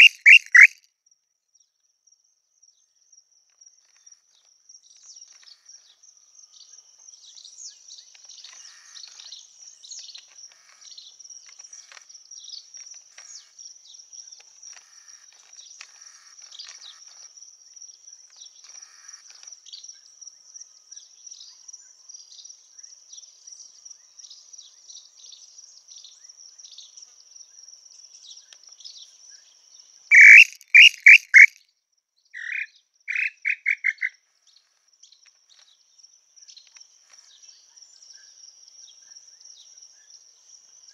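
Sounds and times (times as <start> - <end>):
bird whistling clear notes: 0.0 - 0.7, 30.1 - 31.5.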